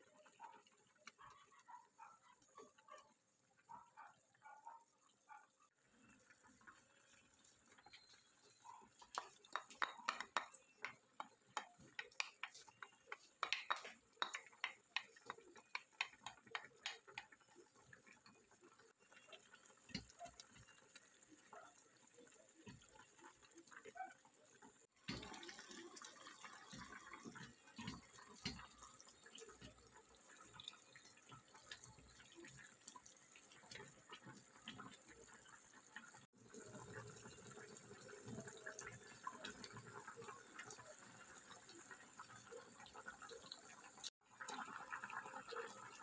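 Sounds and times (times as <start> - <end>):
soup bubbling in a pot: 0.0 - 3.7, 5.0 - 46.0
wooden spoon tapping: 9.1 - 17.3.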